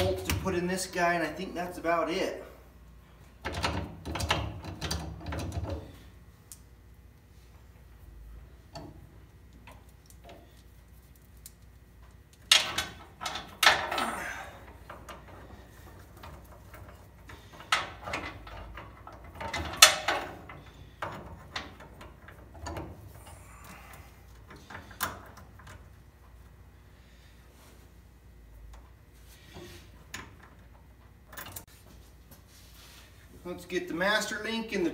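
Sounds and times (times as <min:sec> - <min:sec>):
metal chain clanking and rattling: 0:12.5 - 0:23.0.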